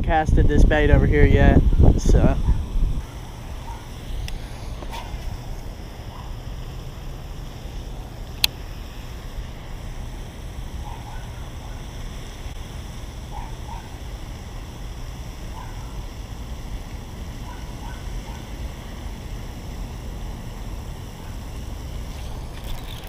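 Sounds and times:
wind noise on microphone: 0:00.0 - 0:05.4.

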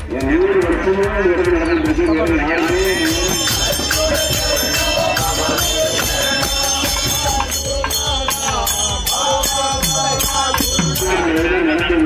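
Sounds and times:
jingling hand percussion: 0:00.0 - 0:12.0
devotional singing: 0:02.5 - 0:12.0.

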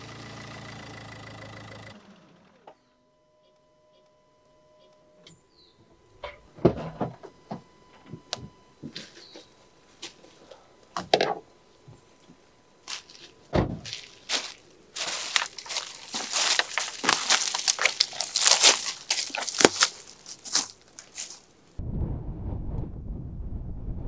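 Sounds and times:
footsteps crunching dry leaves: 0:12.8 - 0:21.5
car door thud: 0:13.5 - 0:13.9.

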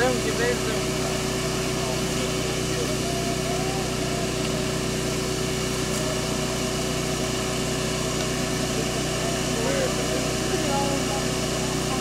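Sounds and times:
vacuum motor humming: 0:00.0 - 0:12.0.

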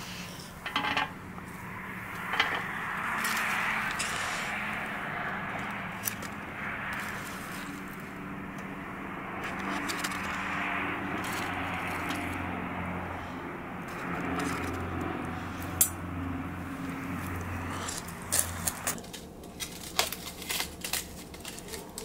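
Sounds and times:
metal tongs scraping on foil: 0:17.8 - 0:22.0.

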